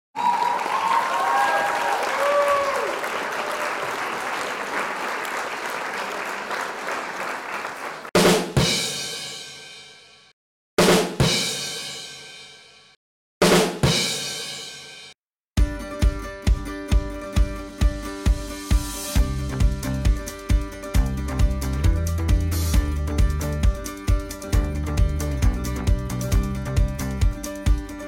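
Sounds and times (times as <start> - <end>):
drum strikes with crashing cymbals: 8.2 - 22.9.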